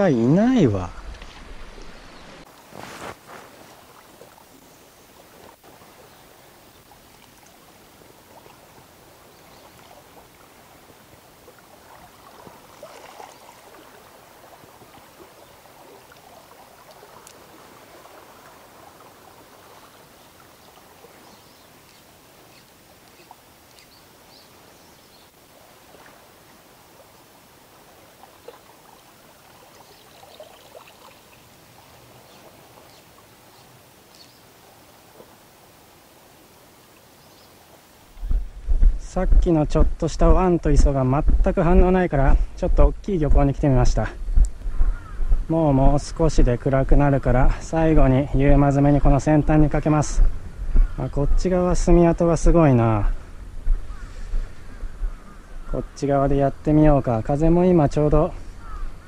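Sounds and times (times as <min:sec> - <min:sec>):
small waves lapping on rocks: 0:06.8 - 0:22.0.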